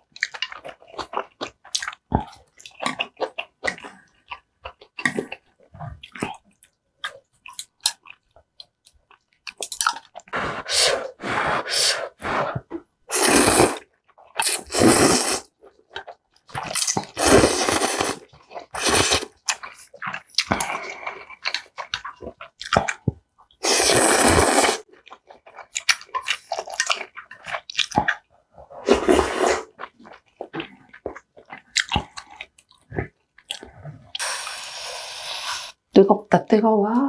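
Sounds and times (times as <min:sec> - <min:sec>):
chewing: 0:00.0 - 0:11.4, 0:15.4 - 0:34.6
wet mouth clicks: 0:06.0 - 0:10.9, 0:12.6 - 0:28.2, 0:29.6 - 0:35.8
slurping noodles: 0:09.9 - 0:15.5, 0:16.5 - 0:22.1, 0:22.9 - 0:35.9.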